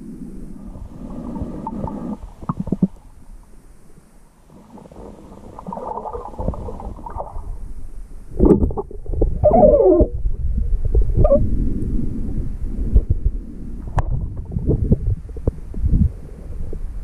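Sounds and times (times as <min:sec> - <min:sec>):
muffled underwater rumbling: 0:00.0 - 0:17.0
underwater bubbling: 0:00.0 - 0:17.0.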